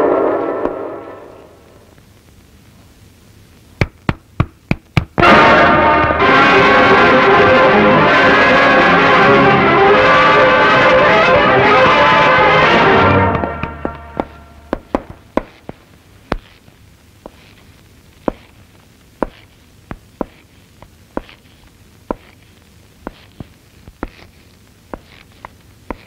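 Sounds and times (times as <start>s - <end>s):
film music: 5.2s - 15.2s.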